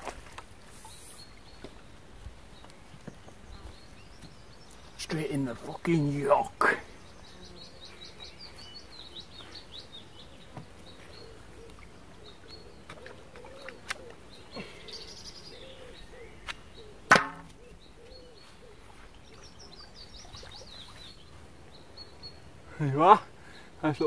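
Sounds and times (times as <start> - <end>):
small birds chirping: 0.2 - 24.0
sharp knock of tackle: 17.1 - 17.6.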